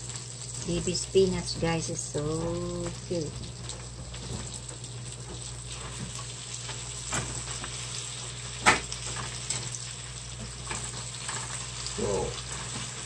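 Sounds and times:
spinach sizzling in a skillet: 0.0 - 13.0.

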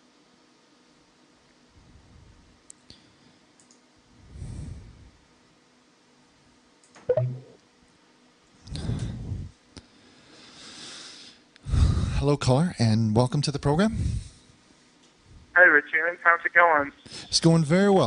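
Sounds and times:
faint clicks: 3.6 - 3.8
sharp mouth click: 7.1 - 7.6
short low hum: 7.1 - 7.6.

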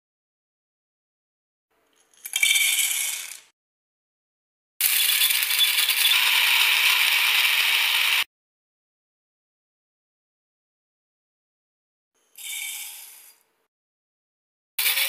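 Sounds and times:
electric grinder whirring: 4.9 - 8.3.

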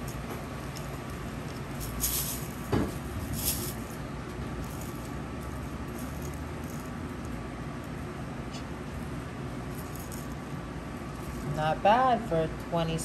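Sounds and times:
plastic bags rustling: 0.0 - 7.0, 9.7 - 10.4
low room noise: 0.0 - 13.0.

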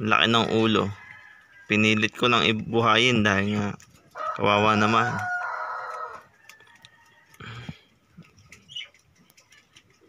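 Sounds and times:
rooster crowing: 0.8 - 1.9, 4.2 - 7.8
faint clicks and rustles: 5.9 - 10.0.

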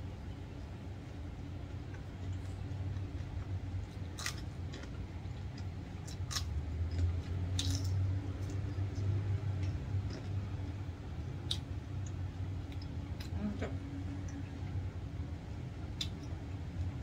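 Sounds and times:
steady low hum: 0.0 - 17.0
crunching bites of vegetables: 1.9 - 10.6.

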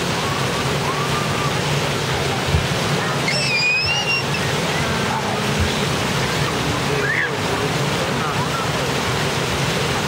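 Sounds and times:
pool water splashing: 0.0 - 10.0
high squeal: 3.2 - 4.5.

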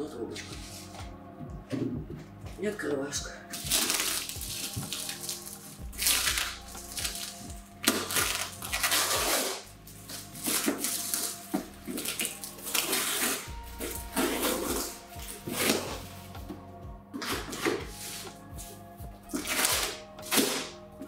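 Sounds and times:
background music: 0.0 - 21.0
plastic film crinkling: 3.5 - 16.2, 19.3 - 20.7
scissors cutting packing tape: 3.6 - 16.0, 19.3 - 20.8.

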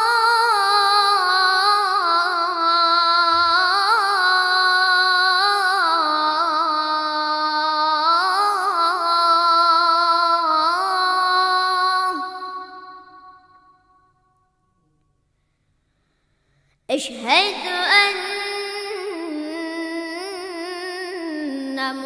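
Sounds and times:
boy chanting call to prayer: 0.0 - 13.6, 16.9 - 22.0.

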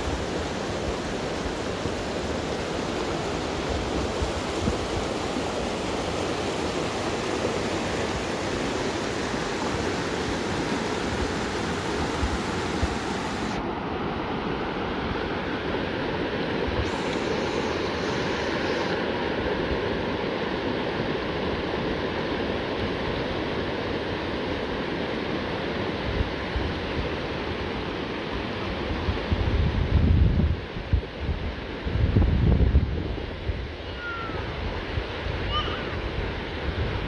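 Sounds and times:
river rushing over rocks: 0.0 - 29.1.

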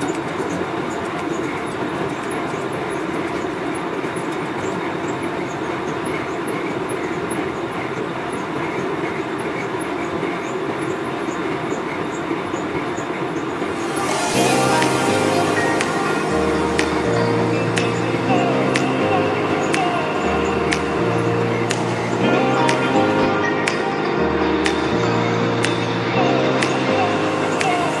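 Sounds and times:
metal lathe machining: 0.0 - 25.6.

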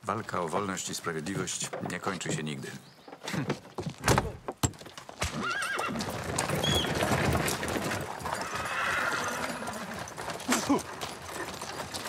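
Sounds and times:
hooves clopping on gravel: 0.0 - 12.0
horse whinnying: 5.2 - 7.2, 8.3 - 10.7.

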